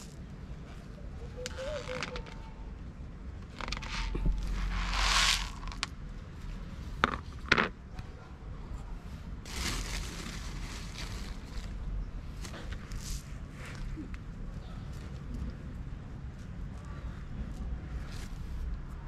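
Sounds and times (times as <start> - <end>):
dry food rustling and scraping: 1.5 - 2.5, 3.4 - 5.9, 9.5 - 11.8.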